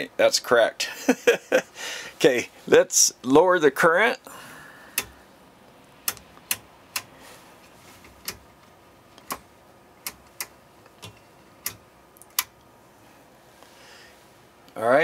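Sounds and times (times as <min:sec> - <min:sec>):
sharp control clicks: 0:06.0 - 0:07.1, 0:08.1 - 0:08.5, 0:09.2 - 0:12.6.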